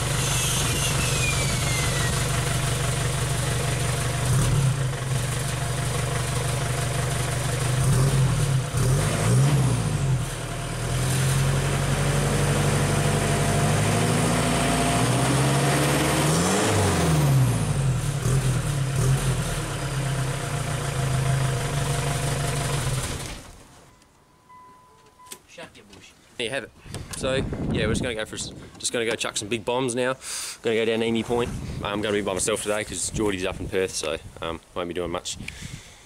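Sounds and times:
diesel exhaust idling and revving: 0:00.0 - 0:23.6.

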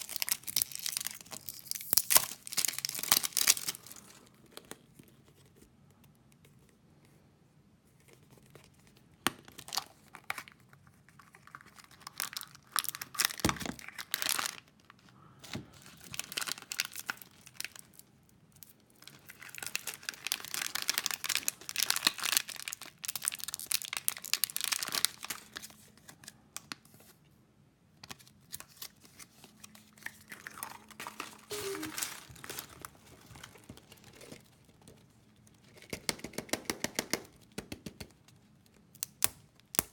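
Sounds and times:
wrappers crinkling and tearing: 0:00.0 - 0:05.0, 0:09.5 - 0:15.0, 0:15.7 - 0:26.4, 0:28.2 - 0:36.0.

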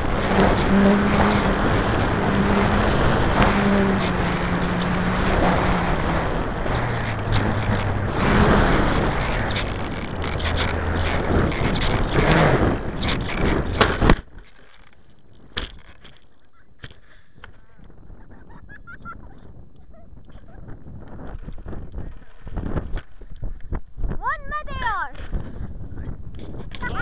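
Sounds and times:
rushing air noise: 0:00.0 - 0:14.2
model airplane motor: 0:00.0 - 0:16.2.

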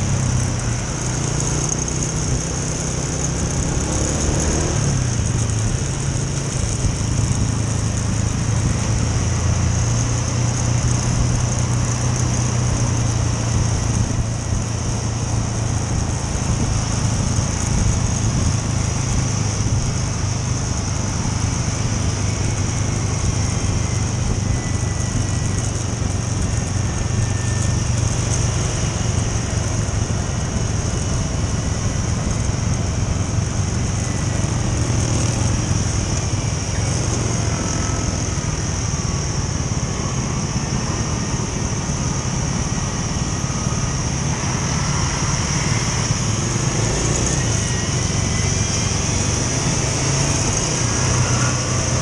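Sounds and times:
scooter engine humming: 0:00.0 - 0:52.0
wind and road noise: 0:00.0 - 0:52.0.

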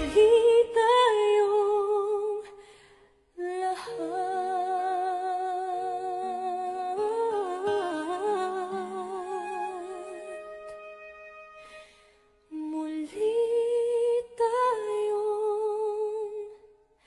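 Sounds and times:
soft accompaniment: 0:03.4 - 0:13.4.

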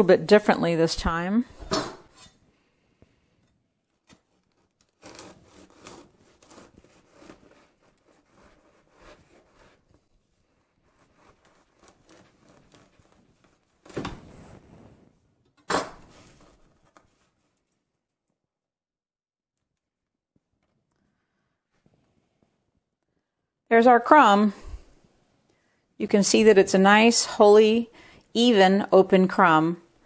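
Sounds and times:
bread knife sawing crusty loaf: 0:04.5 - 0:09.9, 0:10.5 - 0:13.4.

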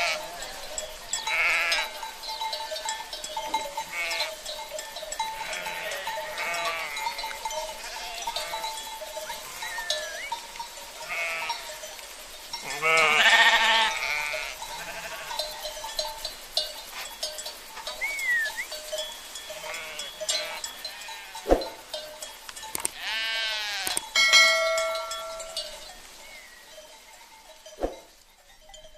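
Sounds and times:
sheep and lambs bleating: 0:00.0 - 0:04.5, 0:05.2 - 0:10.4, 0:11.0 - 0:11.8, 0:12.6 - 0:15.6, 0:19.5 - 0:21.4, 0:22.9 - 0:25.8.

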